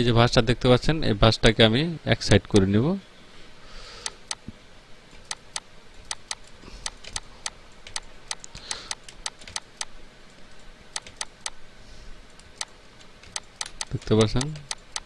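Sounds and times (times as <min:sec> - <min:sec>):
faint steady hiss: 0:00.0 - 0:15.0
computer mouse clicking: 0:05.2 - 0:11.6, 0:12.3 - 0:15.0.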